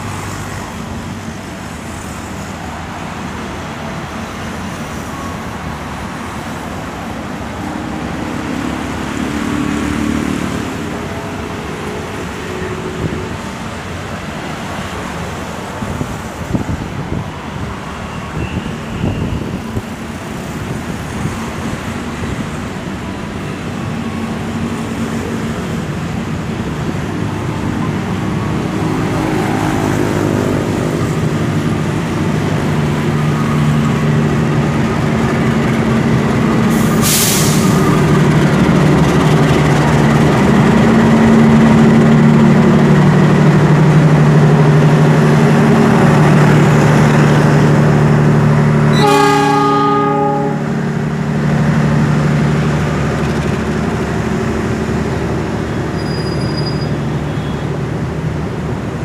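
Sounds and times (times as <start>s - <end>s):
diesel locomotive engine drone: 0.0s - 59.0s
brief sharp hiss: 36.7s - 37.9s.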